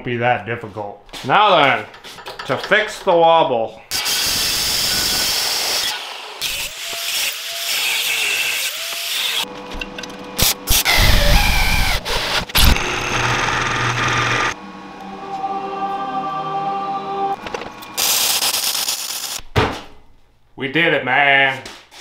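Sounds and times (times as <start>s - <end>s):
knocks of steel parts: 1.9s - 3.1s
electric drill boring through steel: 3.9s - 9.5s, 10.7s - 14.6s.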